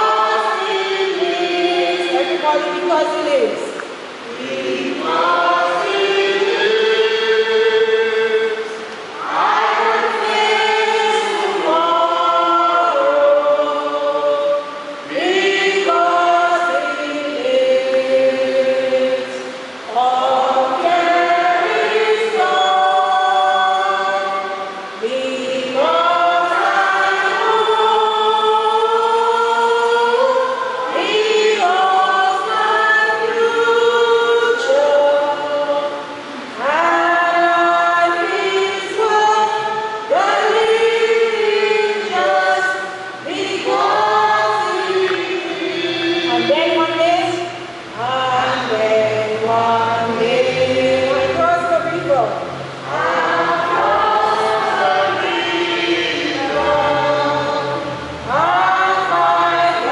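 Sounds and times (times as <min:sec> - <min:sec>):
choir singing unaccompanied: 0:00.0 - 0:59.9.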